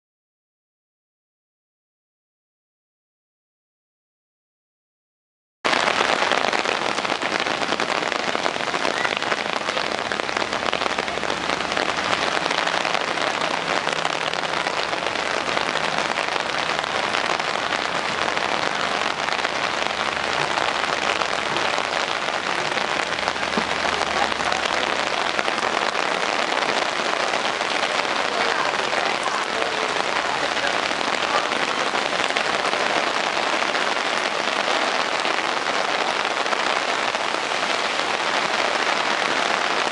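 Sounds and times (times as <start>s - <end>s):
heavy rain on pavement: 5.7s - 39.9s.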